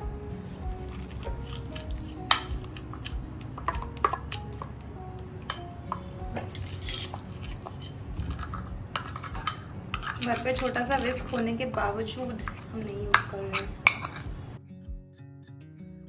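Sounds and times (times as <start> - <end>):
metal spoon clinking in ceramic bowl: 1.0 - 4.6, 5.5 - 11.5, 12.5 - 14.3.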